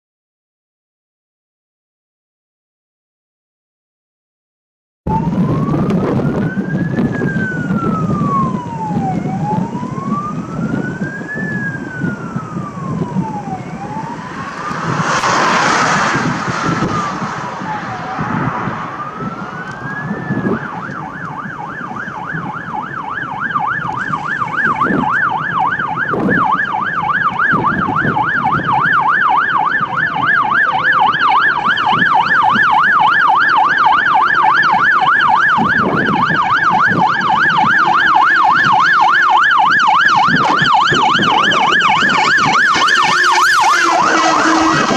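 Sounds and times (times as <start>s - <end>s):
fire engine sirens: 5.1s - 44.9s
truck diesel engine rumble: 5.6s - 35.6s, 36.4s - 44.9s
brief rushing noise: 13.9s - 19.4s.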